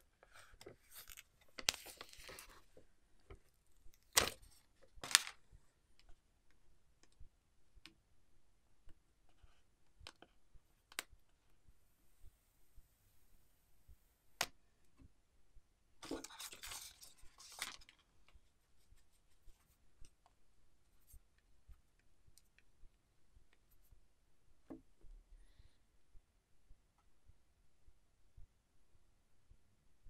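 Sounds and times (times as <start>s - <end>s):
plastic film crinkling: 16.1s - 18.0s.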